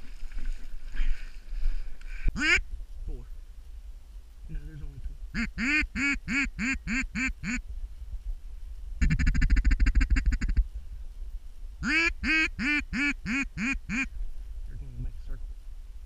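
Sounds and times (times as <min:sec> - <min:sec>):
duck call quacks: 0:02.4 - 0:02.6, 0:05.4 - 0:07.6, 0:09.0 - 0:10.6, 0:11.8 - 0:14.1.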